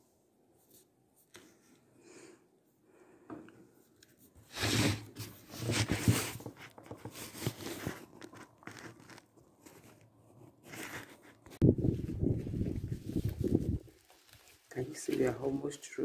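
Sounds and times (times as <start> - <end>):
rustling and crinkling handling noise: 3.7 - 16.0
loud scrapes: 4.4 - 6.5.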